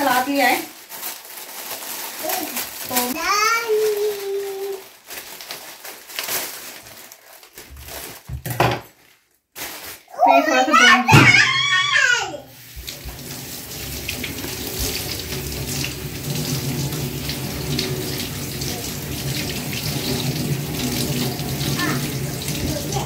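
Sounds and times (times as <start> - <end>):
tap water splashing on lettuce: 12.6 - 23.0.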